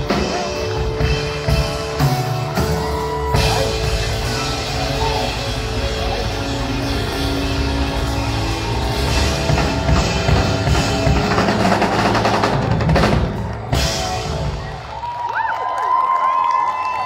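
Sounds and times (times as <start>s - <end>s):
live band playing: 0.0s - 15.2s
drum fills: 0.0s - 15.3s.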